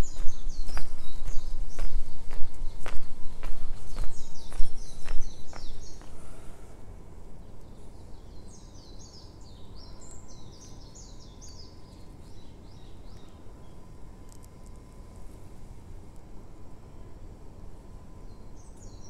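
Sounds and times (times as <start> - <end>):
footsteps: 0.0 - 6.4
songbird singing: 0.0 - 6.7, 7.3 - 15.2, 16.1 - 19.0.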